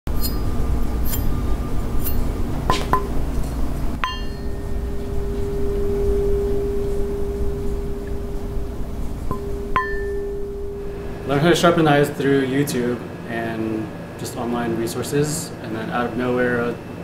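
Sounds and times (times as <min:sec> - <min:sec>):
ringing metallic strike: 0:00.1 - 0:03.2, 0:04.0 - 0:11.6
low hum: 0:00.1 - 0:13.8.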